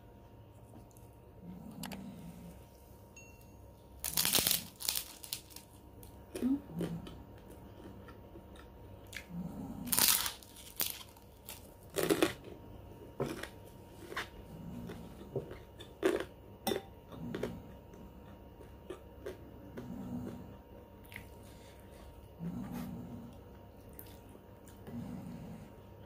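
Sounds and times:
soft chewing: 0.4s - 3.0s, 4.9s - 16.4s, 17.0s - 26.0s
cracker crunching in mouth: 4.0s - 12.6s.

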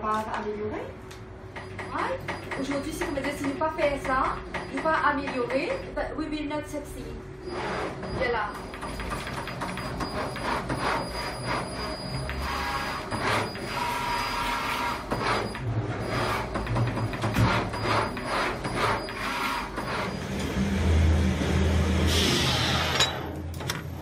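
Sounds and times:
plotter motors whirring: 6.8s - 21.7s.

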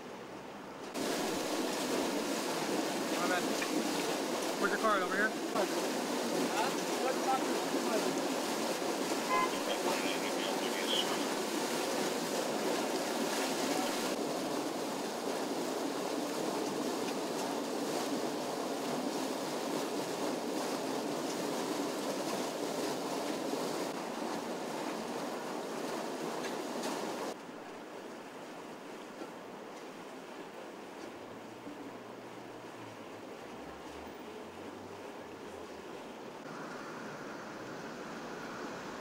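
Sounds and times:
water gushing and splashing: 0.9s - 39.0s.

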